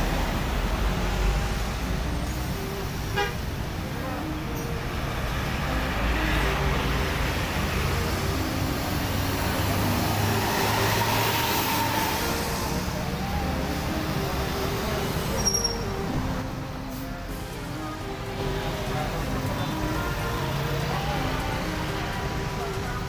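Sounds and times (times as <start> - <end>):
coach diesel engines passing: 0.0 - 23.0
street traffic noise: 0.0 - 23.0
brief high-pitched tone: 15.3 - 17.3.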